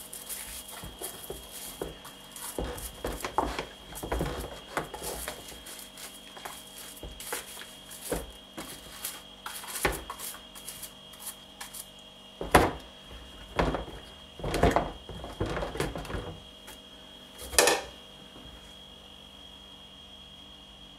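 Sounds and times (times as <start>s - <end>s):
dish brush scrubbing: 0.0s - 16.4s
shoes knocking against a bowl: 0.4s - 10.4s, 13.5s - 16.4s.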